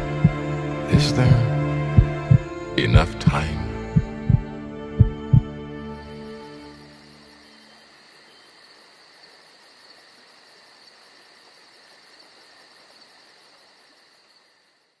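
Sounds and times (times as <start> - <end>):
insects chirping: 3.4 - 15.0.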